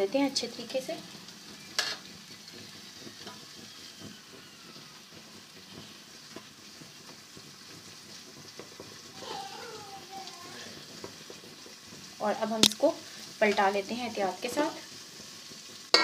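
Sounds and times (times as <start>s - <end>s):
dough sizzling in oil: 0.0s - 16.0s
sharp click: 12.6s - 12.8s.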